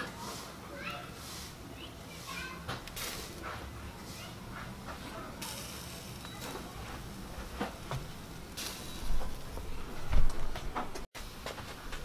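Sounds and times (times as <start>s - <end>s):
meat sizzling over fire: 0.0s - 9.7s
fire crackles and pops: 2.7s - 3.6s.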